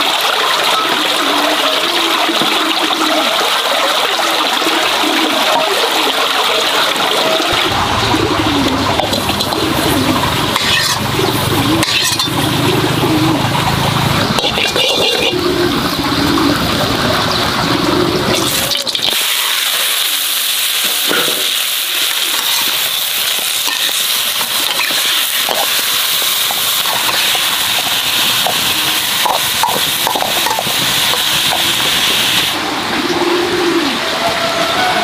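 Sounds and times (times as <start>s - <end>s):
spattering crackles: 7.4s - 12.9s, 18.3s - 32.6s
meat sizzling in a hot pan: 10.6s - 11.0s, 18.4s - 32.6s.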